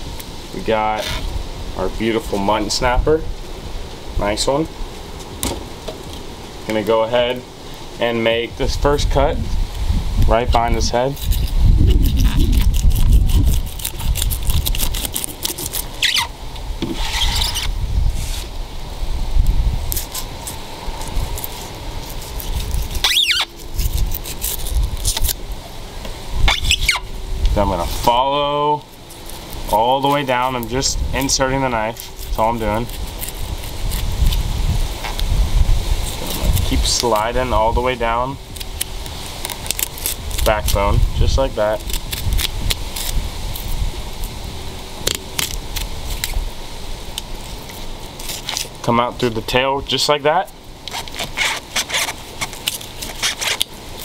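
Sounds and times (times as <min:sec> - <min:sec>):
knife scraping through fish scales: 0:11.2 - 0:16.3, 0:16.9 - 0:18.5, 0:50.9 - 0:53.7
short high squeak: 0:16.0 - 0:16.3, 0:16.9 - 0:18.4, 0:23.0 - 0:23.5, 0:26.4 - 0:27.1.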